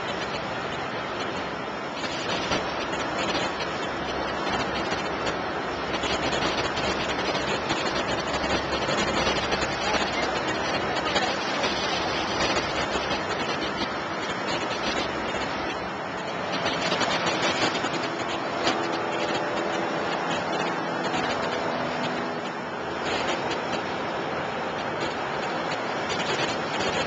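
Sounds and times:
choppy sea: 0.0 - 27.0
wind: 0.0 - 27.0
wind buffeting on microphone: 0.0 - 27.0.

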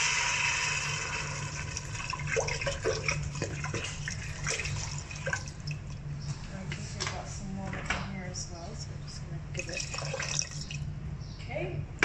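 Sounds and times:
water pouring into a pot: 0.0 - 6.0, 9.6 - 10.8.

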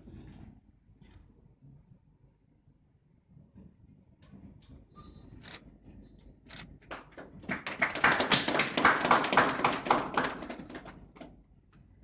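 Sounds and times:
audience clapping: 6.8 - 11.4.

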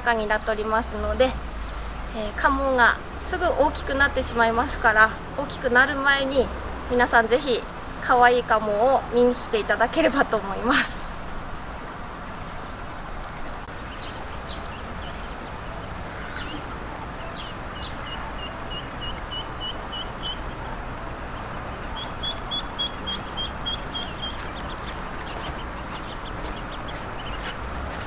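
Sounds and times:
steady background noise: 0.0 - 28.0
ducklings peeping: 12.2 - 28.0.

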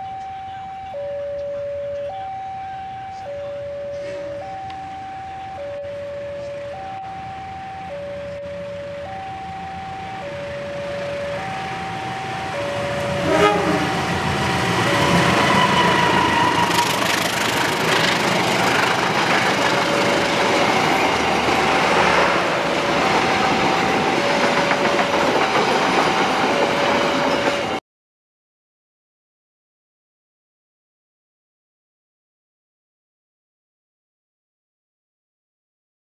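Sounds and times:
locomotive passing: 0.0 - 27.8
two-tone warning alarm: 0.0 - 27.8
wheels rumbling on rails: 0.1 - 27.8.

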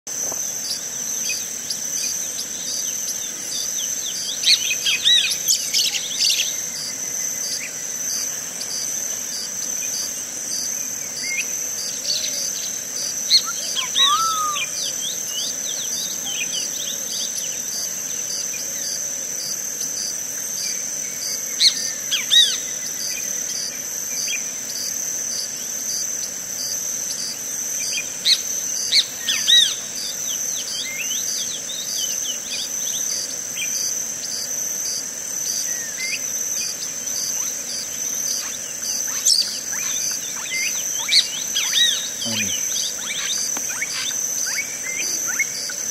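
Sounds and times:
high-pitched insect drone: 0.1 - 45.9
birds chirping: 0.5 - 18.6, 35.5 - 45.9.

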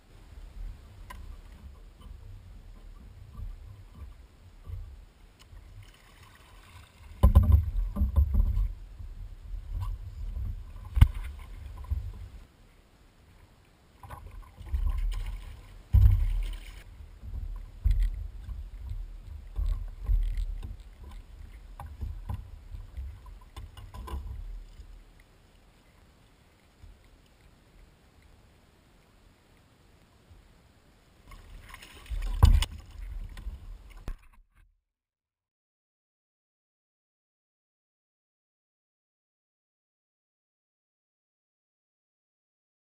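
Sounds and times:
water splashing: 0.4 - 12.5, 13.4 - 27.8, 31.2 - 34.3
knocks and thumps on hull: 7.1 - 12.3, 14.0 - 24.8, 31.4 - 34.3.

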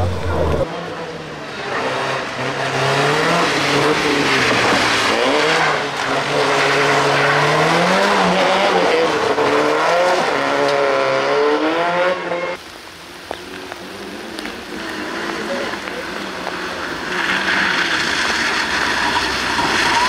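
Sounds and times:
rally car engine at high revs: 0.0 - 12.6, 13.8 - 20.0.

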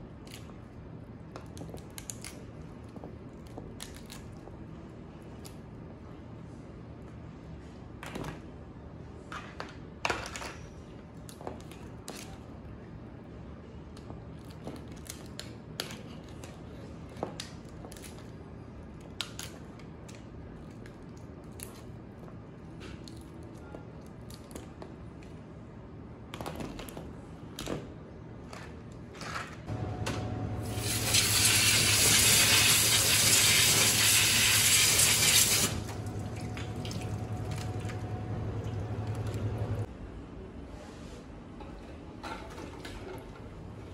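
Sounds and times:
low steady hum: 11.8 - 32.2, 34.9 - 43.9.

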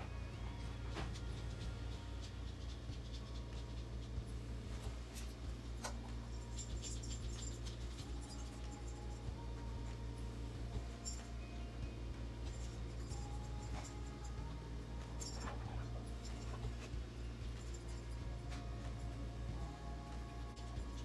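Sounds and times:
steady low hum: 0.0 - 21.0
small ticks: 1.1 - 4.3.

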